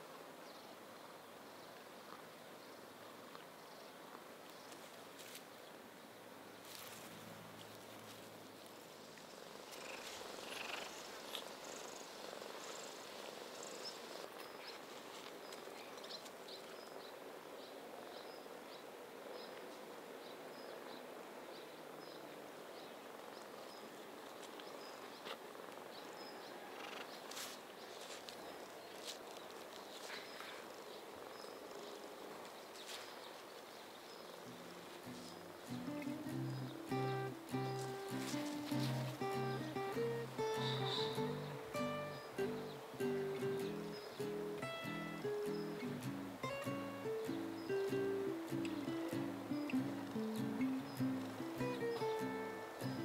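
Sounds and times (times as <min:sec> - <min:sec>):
cat purring: 0:09.2 - 0:14.9, 0:30.1 - 0:32.5
faint high chirp: 0:34.2 - 0:53.0.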